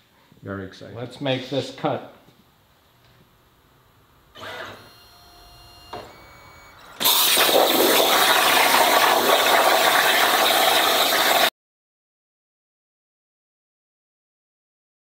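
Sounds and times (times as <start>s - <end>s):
plasma arc hissing rush: 7.0s - 11.5s.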